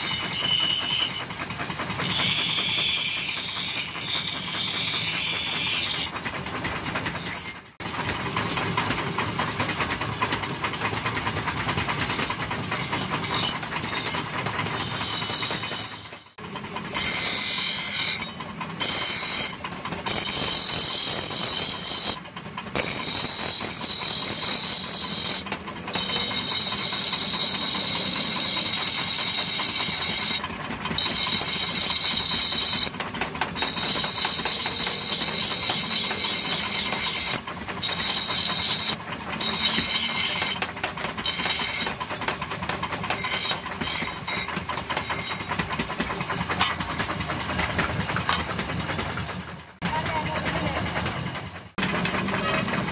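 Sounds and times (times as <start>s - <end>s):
steel grinding on abrasive wheel: 0.0s - 7.8s, 11.7s - 46.8s.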